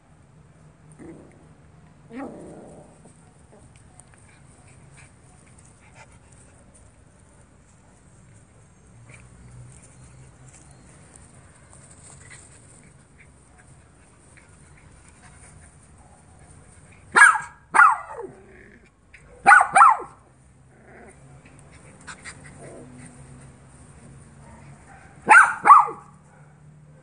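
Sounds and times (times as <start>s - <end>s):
small dogs barking: 16.0s - 18.5s, 19.2s - 20.3s, 24.4s - 26.7s.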